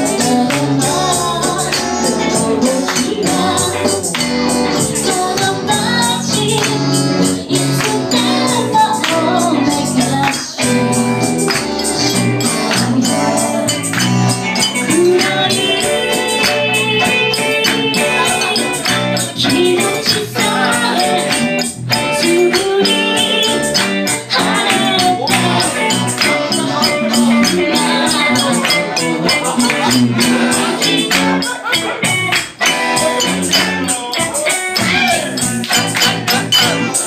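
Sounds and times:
electric guitars strummed: 0:00.0 - 0:37.0
keyboard: 0:00.0 - 0:37.0
percussion beat: 0:00.0 - 0:37.0
person singing: 0:00.0 - 0:37.0
ukulele strumming: 0:24.0 - 0:37.0.

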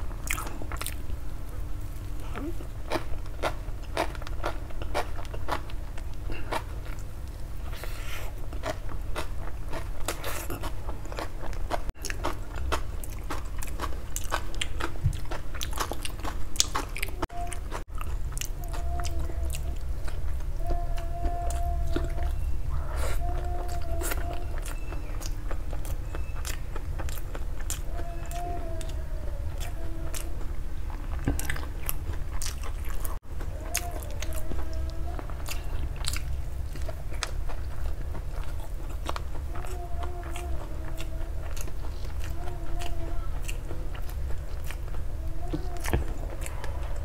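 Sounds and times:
biting and crunching fried food: 0:02.6 - 0:47.0
wet chewing: 0:07.7 - 0:47.0.

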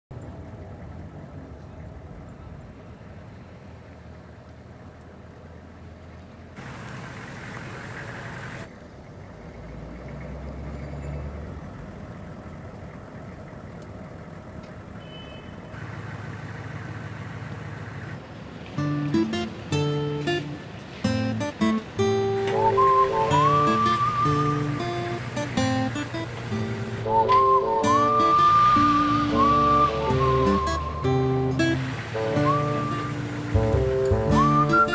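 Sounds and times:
road and wind noise: 0:00.1 - 0:34.9
pickup truck engine running: 0:21.4 - 0:34.9.

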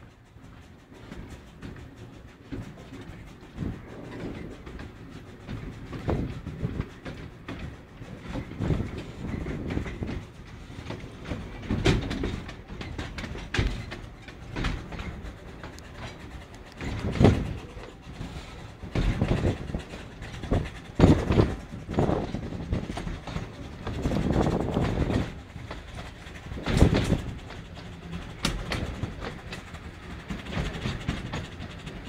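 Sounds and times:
train wheels rumbling: 0:00.0 - 0:32.0.

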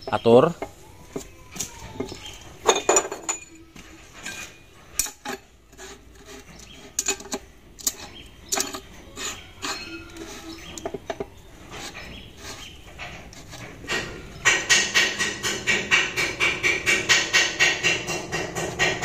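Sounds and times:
metal parts clinking and knocking: 0:00.1 - 0:12.1.

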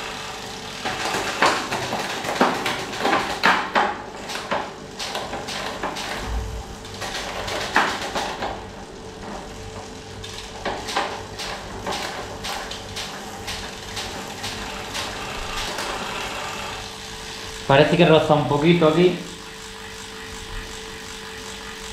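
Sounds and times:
bike drivetrain low pulsing hum: 0:06.0 - 0:10.7, 0:11.5 - 0:21.9.

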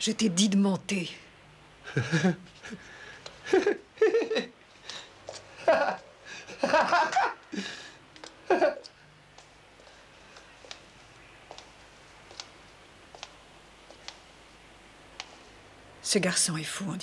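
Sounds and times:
young man laughing: 0:01.9 - 0:02.8, 0:03.4 - 0:04.6, 0:05.5 - 0:07.8, 0:08.4 - 0:08.9.

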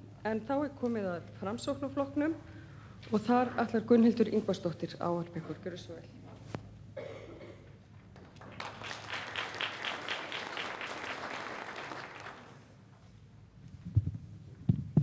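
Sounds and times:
audience applauding: 0:08.2 - 0:12.7.

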